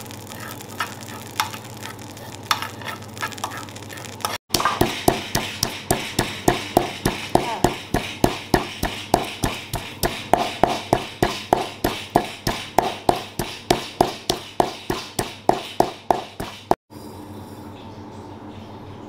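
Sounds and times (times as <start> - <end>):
pestle pounding in a mortar: 4.5 - 16.8.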